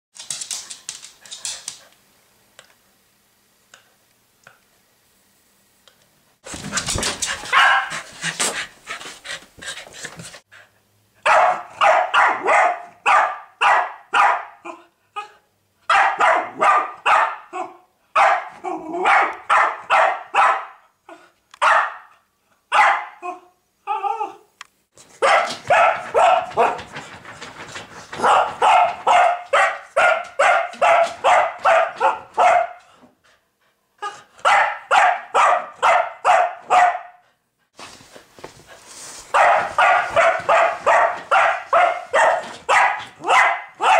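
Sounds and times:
dog barking: 7.5s - 8.1s, 11.2s - 14.8s, 15.9s - 20.8s, 21.6s - 23.4s, 25.2s - 26.9s, 28.2s - 32.9s, 34.0s - 37.2s, 39.3s - 43.9s.

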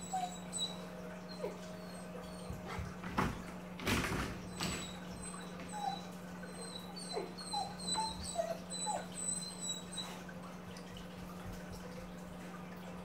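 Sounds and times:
puppy whining: 0.0s - 3.5s, 4.2s - 10.4s
puppy bumping against gate: 2.7s - 5.0s.

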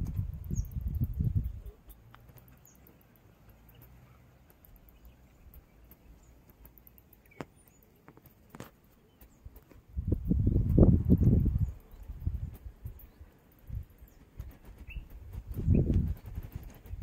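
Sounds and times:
tiny high chirps: 0.0s - 14.2s
faint clicks: 1.9s - 9.8s.

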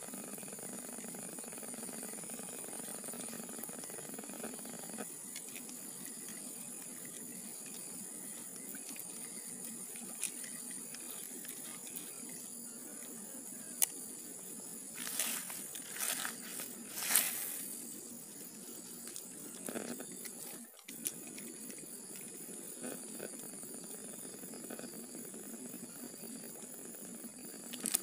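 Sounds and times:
high-pitched outdoor hiss: 0.0s - 28.0s
rustling and handling noise: 14.9s - 17.8s.

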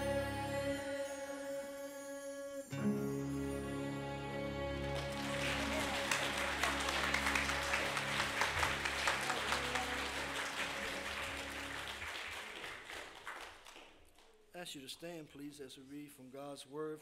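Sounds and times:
held choir chord: 0.0s - 11.9s
congregation applauding: 4.3s - 14.3s.

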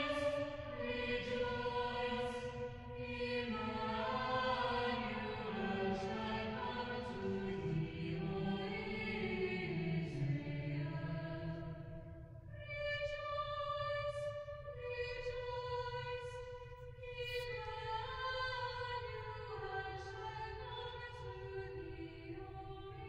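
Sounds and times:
choir singing slow held notes: 0.0s - 11.9s.

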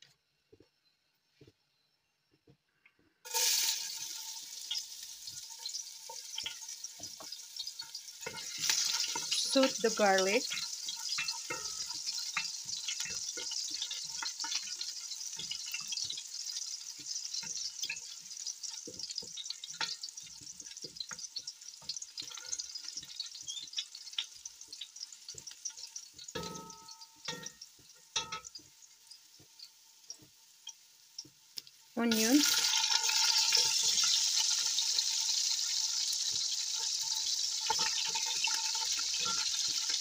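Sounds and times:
garlic sizzling in oil: 3.2s - 40.0s
spatula scraping a pot: 5.6s - 28.6s, 32.5s - 40.0s.

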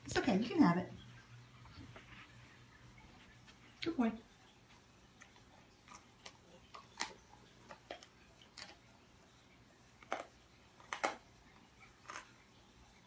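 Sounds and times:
dog crunching bone: 5.2s - 9.0s, 10.0s - 12.4s.

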